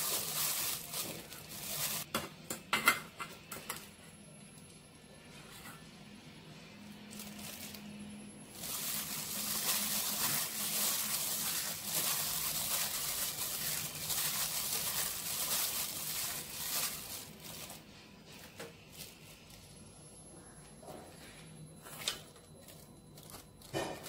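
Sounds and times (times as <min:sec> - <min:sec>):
plastic glove crinkling: 0:00.0 - 0:02.1, 0:07.0 - 0:19.8
salad ingredients rustling: 0:00.0 - 0:02.1, 0:08.5 - 0:19.6.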